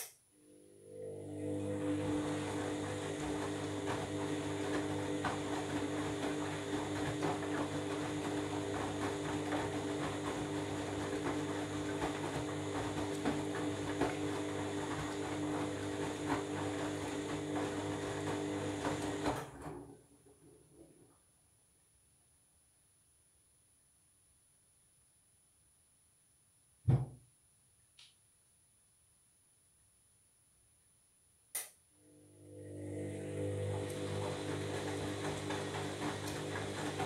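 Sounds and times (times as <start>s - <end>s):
washing machine motor hum: 0.4s - 21.2s, 32.0s - 37.0s.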